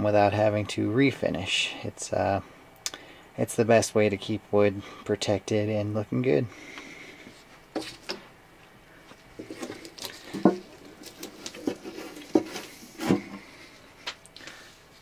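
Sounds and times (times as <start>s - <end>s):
handling taps clicks and rustles: 9.1s - 13.4s.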